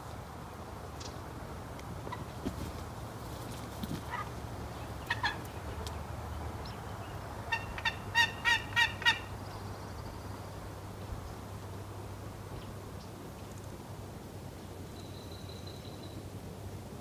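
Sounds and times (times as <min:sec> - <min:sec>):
turkey yelping: 0:05.1 - 0:05.4, 0:07.5 - 0:09.3.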